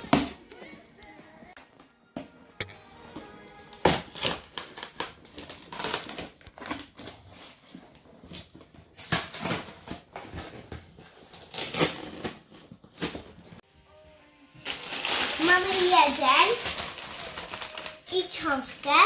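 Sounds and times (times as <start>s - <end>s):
packaging crinkling and rustling: 3.7s - 13.6s, 14.6s - 18.2s.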